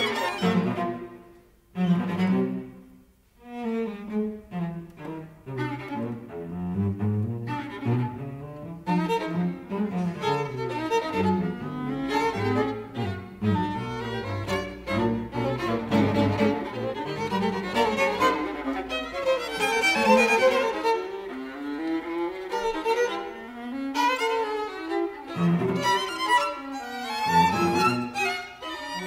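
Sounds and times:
cello low notes: 0.0s - 29.0s
string quartet playing: 0.0s - 29.0s.

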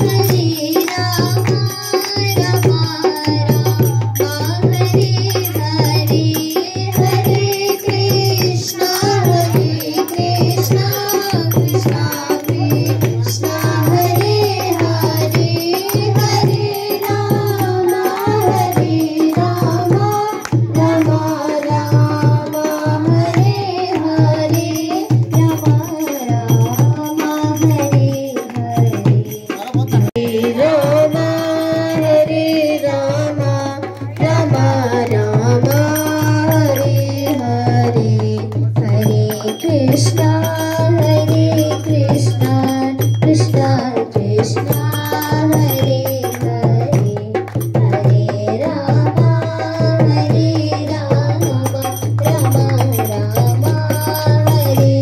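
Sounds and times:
hand clapping: 0.0s - 4.4s, 44.7s - 47.9s
barrel drum beat: 0.0s - 55.0s
girls singing devotional song: 0.0s - 55.0s.

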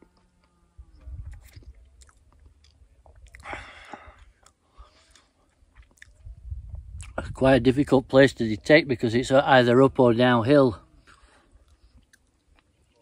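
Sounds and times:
person chewing and crunching food: 1.2s - 6.2s, 11.0s - 13.0s.

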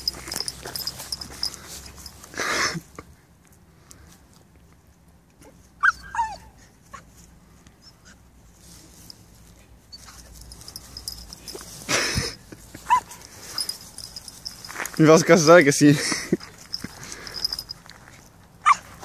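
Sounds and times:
scuffling rustle: 0.0s - 2.4s, 8.5s - 15.7s
dog yelping: 12.9s - 14.6s, 18.6s - 18.8s.

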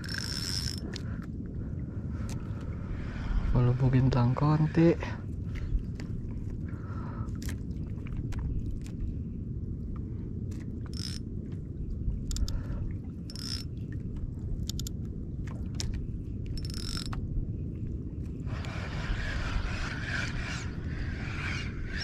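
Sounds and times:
fishing reel clicks and rattles: 0.0s - 1.0s, 10.9s - 11.2s, 13.3s - 13.7s, 16.6s - 17.2s
fishing reel whirring: 0.0s - 1.0s, 10.9s - 11.2s, 13.3s - 13.7s, 16.6s - 17.1s, 18.5s - 22.0s
low rumble: 0.0s - 22.0s.

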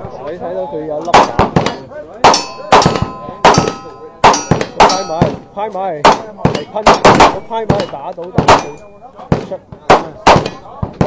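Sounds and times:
gunshots: 1.1s - 11.0s
steel targets clanging: 2.2s - 5.5s, 6.6s - 9.0s.

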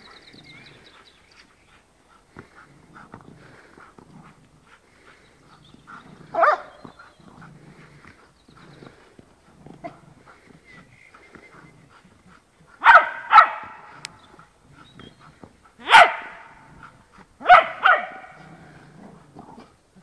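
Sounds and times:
dog barking: 6.3s - 6.8s, 12.8s - 14.1s, 15.8s - 16.7s, 17.4s - 18.5s.

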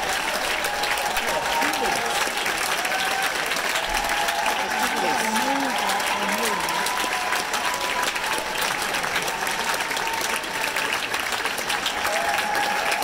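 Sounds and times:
audience applauding: 0.0s - 13.0s
crowd calling out: 2.8s - 10.8s.

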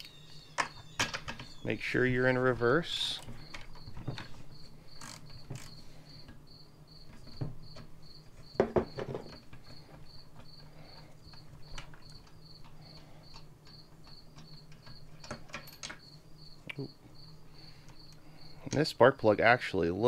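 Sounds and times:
steady high chirping: 0.0s - 8.6s
ratchet metal clicks and knocks: 5.0s - 5.8s.

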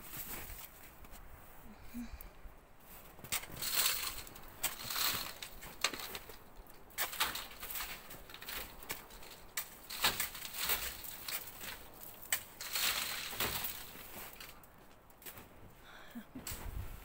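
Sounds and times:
snow sliding off roof: 2.8s - 6.4s.

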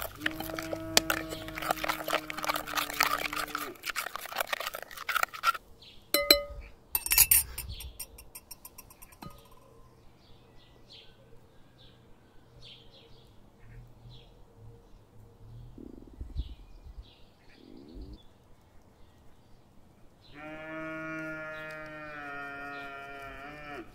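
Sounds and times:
spoon scraping glass bowl: 0.0s - 5.6s, 6.2s - 9.7s
spoon clinking on dishes: 6.2s - 9.7s.

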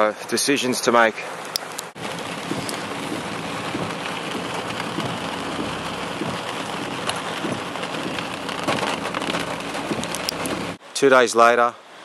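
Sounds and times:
rain on vehicle: 1.4s - 10.8s
engine running: 2.0s - 10.8s.

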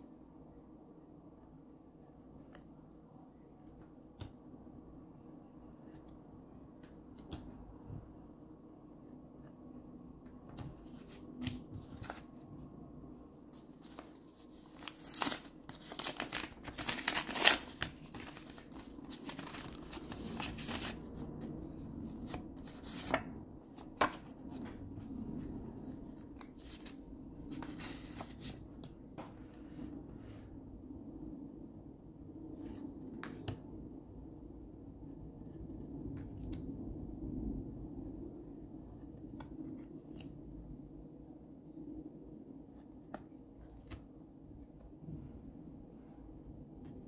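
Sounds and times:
paper packaging tearing and crinkling: 13.7s - 21.0s
cards clicking and rustling: 13.8s - 21.0s.

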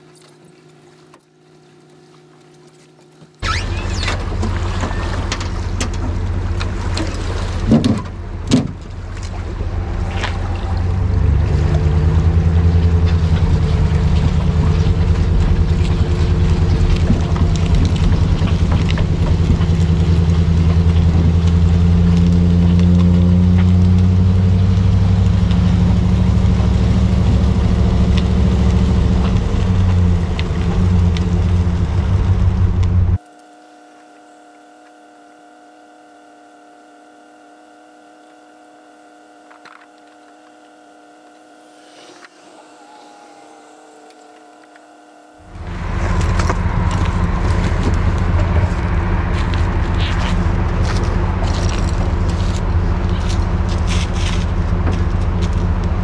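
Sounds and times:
pickup truck engine running: 3.4s - 33.2s, 44.2s - 56.0s.

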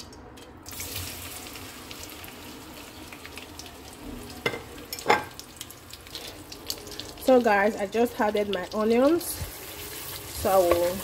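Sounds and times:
onions sizzling in oil: 0.7s - 11.0s.

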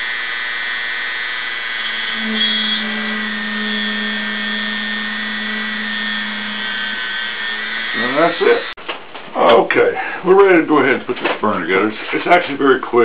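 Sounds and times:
rotary tool drilling whine: 0.0s - 8.8s.

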